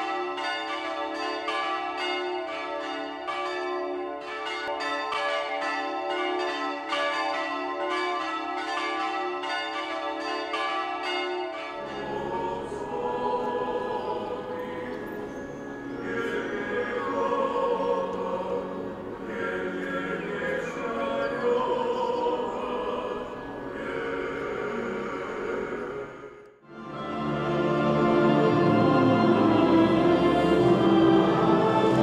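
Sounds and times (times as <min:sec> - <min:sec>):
church bells ringing: 0:00.0 - 0:32.0
large crowd singing: 0:11.9 - 0:32.0.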